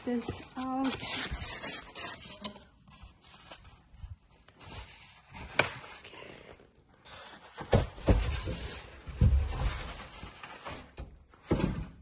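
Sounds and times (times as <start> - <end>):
styrofoam scraping and rubbing: 0.1 - 5.4.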